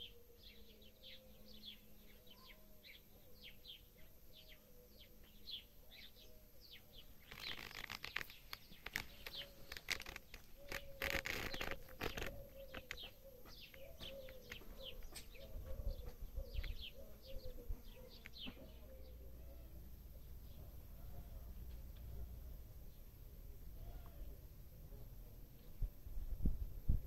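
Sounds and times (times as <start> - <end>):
small birds chirping: 0.0 - 26.6
wings rustling and flapping: 7.2 - 16.2.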